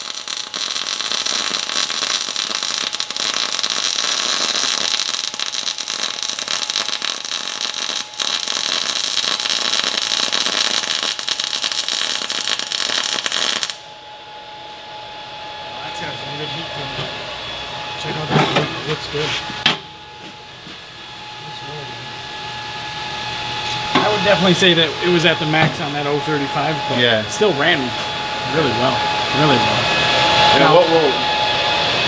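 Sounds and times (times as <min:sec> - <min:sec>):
welding arc hissing: 0:00.0 - 0:13.9.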